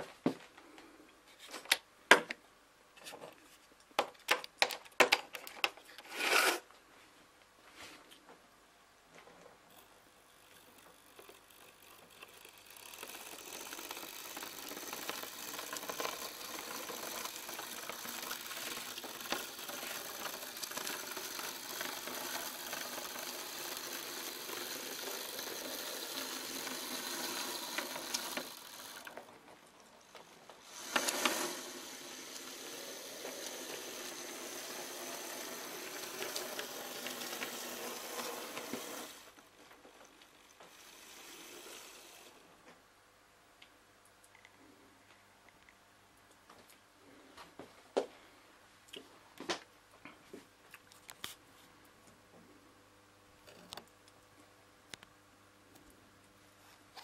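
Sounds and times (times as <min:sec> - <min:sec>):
model train motor whirring: 0:09.7 - 0:29.3, 0:30.6 - 0:39.4, 0:40.6 - 0:42.4.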